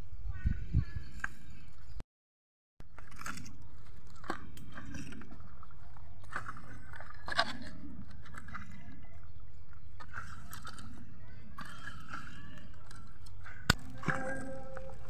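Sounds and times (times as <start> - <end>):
bamboo sticks clattering on dirt: 11.6 - 15.0.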